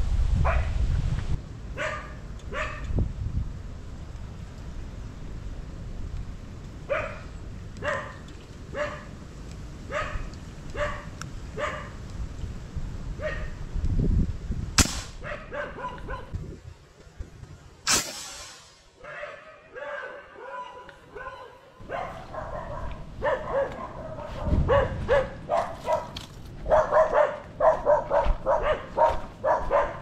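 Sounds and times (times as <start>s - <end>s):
dog barking: 0.4s - 0.7s, 1.8s - 2.9s, 6.9s - 9.1s, 9.9s - 12.0s, 13.2s - 13.6s, 15.2s - 16.4s, 19.0s - 30.0s
air rifle shot: 14.8s - 15.3s, 17.9s - 18.9s.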